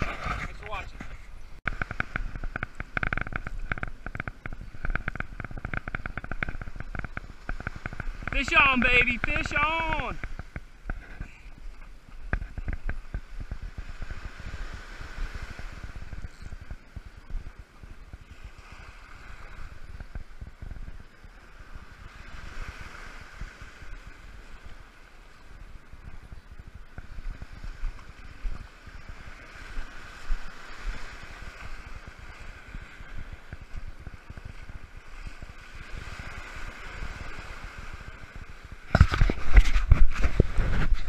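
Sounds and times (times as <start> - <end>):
ocean surf breaking: 0.0 - 16.7
wind buffeting microphone: 0.0 - 41.0.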